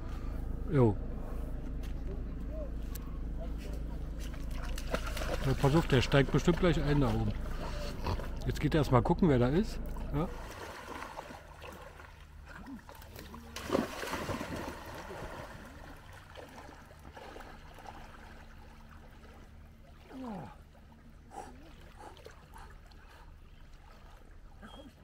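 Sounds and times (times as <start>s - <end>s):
water sloshing and lapping: 1.2s - 25.0s
dog splashing into water: 4.2s - 7.2s, 12.9s - 17.6s.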